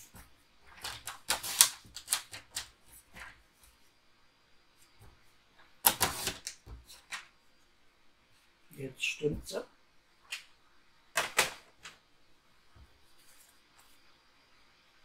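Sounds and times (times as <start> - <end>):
cardstock clicking and rustling: 0.7 - 3.4.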